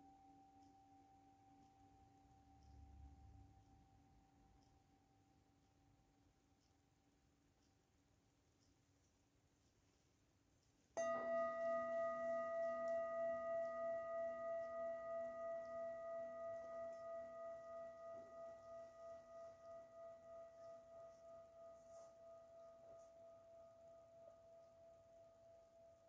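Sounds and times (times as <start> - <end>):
metal singing bowl ringing: 11.0 - 26.0.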